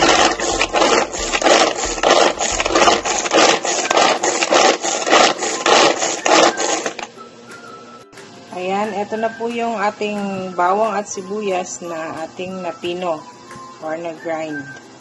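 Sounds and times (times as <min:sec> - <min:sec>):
pull-cord food chopper spinning: 0:00.0 - 0:07.1.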